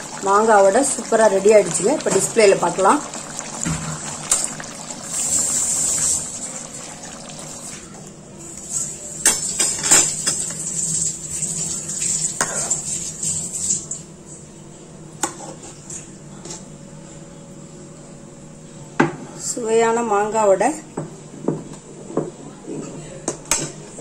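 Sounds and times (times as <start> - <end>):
curry bubbling in a pan: 0.0 - 7.8.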